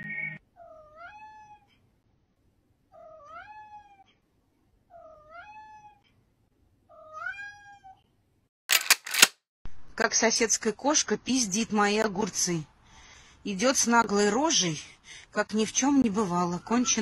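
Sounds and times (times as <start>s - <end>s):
cat meowing: 0.6s - 1.7s, 3.0s - 4.1s, 4.9s - 6.0s, 6.9s - 8.0s.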